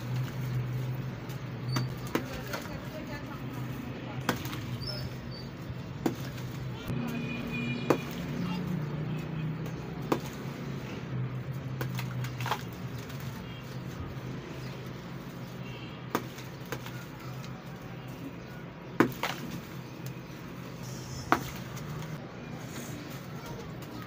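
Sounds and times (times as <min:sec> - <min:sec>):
hands crumbling brick: 0:11.8 - 0:13.4, 0:19.0 - 0:19.8
sharp crunches of breaking brick: 0:19.0 - 0:19.8.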